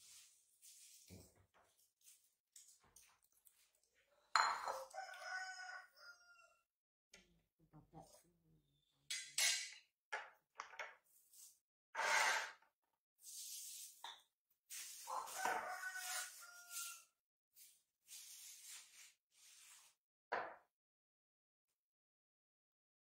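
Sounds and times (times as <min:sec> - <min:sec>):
clink on ceramic plate: 0:04.4 - 0:04.9.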